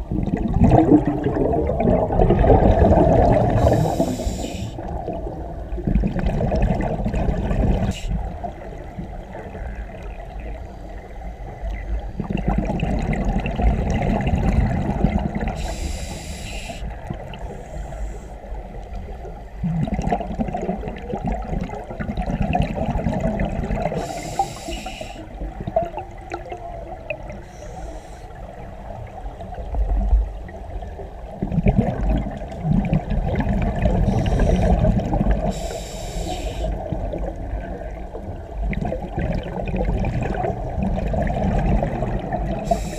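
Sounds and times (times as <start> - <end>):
exhaled air bubbling: 0.0 - 42.9
scuba regulator breathing hiss: 3.6 - 4.8, 15.6 - 18.5, 23.9 - 25.4, 27.4 - 28.4, 34.1 - 34.8, 35.5 - 36.8, 42.6 - 42.9.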